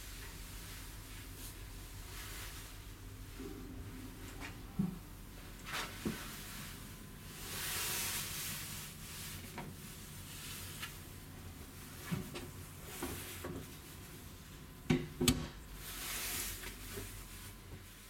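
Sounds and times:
low hum of ship machinery: 0.0 - 18.0.

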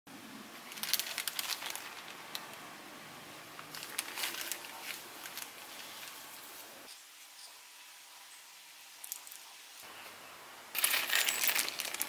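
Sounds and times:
plastic bag crinkling: 0.6 - 2.6, 3.6 - 6.5, 10.8 - 12.0.

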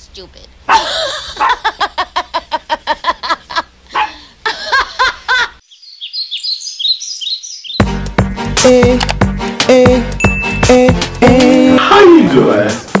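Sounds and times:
woman laughing hard: 0.7 - 5.6
birds chirping: 5.4 - 8.5.

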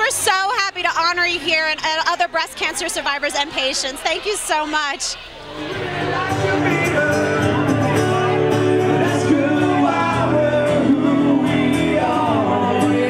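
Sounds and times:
strummed acoustic guitars: 0.0 - 13.0
man singing into microphone: 5.7 - 13.0.

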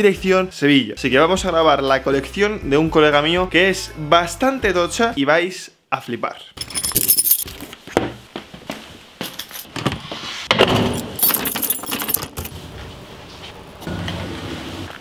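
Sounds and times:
keys jangling: 6.6 - 7.6, 9.4 - 9.7, 11.0 - 12.5.

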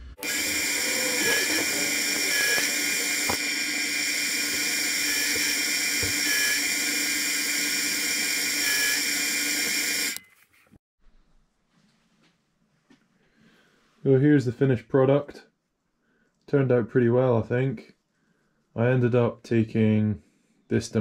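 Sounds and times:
lathe motor whining: 0.0 - 10.2
cutting tool squeals: 0.2 - 10.3.

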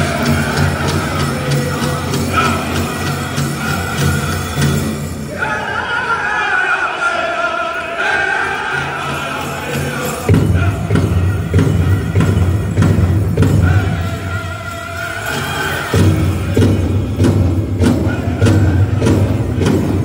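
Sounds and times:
big drum beats: 0.0 - 5.3, 9.7 - 20.0
high wavering voices singing: 0.0 - 12.8, 13.4 - 17.0.

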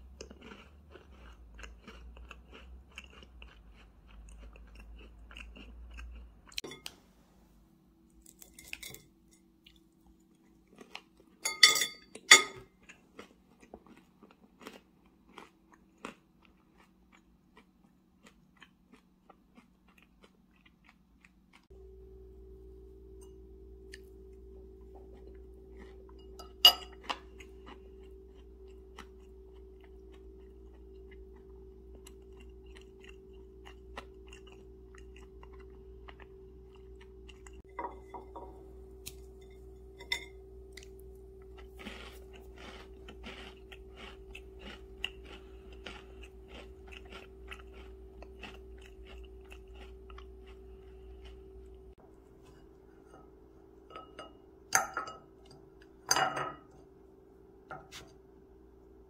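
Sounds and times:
crunchy chewing: 0.0 - 6.7, 9.6 - 11.4, 12.1 - 21.8, 23.8 - 37.7, 38.6 - 53.0
fork clinking on plate: 11.4 - 12.6, 26.2 - 27.1.

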